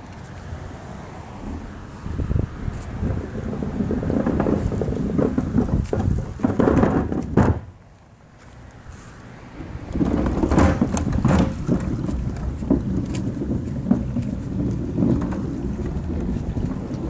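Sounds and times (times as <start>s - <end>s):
wind and handling rumble: 0.0s - 17.0s.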